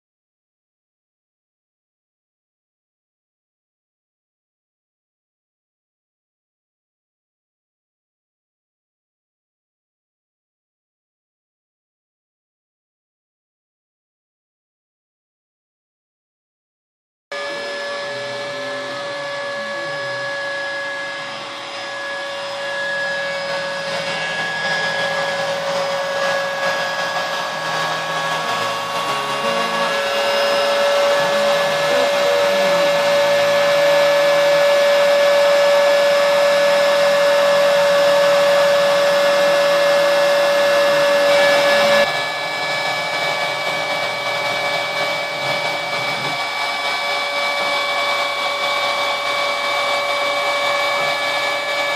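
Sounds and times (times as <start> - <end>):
router spindle whining: 17.3 - 51.9.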